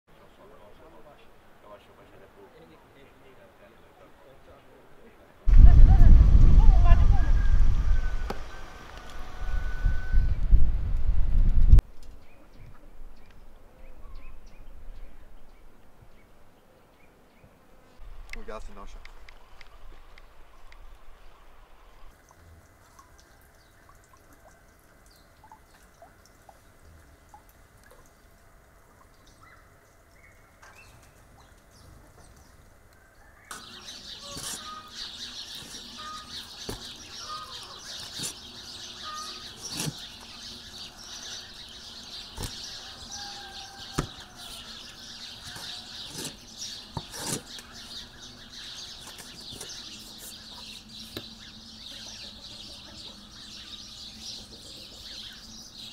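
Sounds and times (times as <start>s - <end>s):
birds chirping: 29.0s - 55.9s
cleaver chopping on wooden board: 44.0s - 44.2s.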